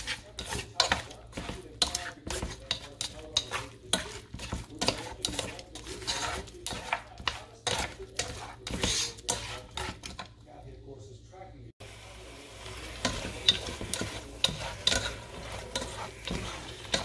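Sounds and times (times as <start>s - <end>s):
chopsticks clacking and scraping pot: 0.0s - 10.4s, 13.0s - 17.0s
meat sizzling: 11.8s - 17.0s.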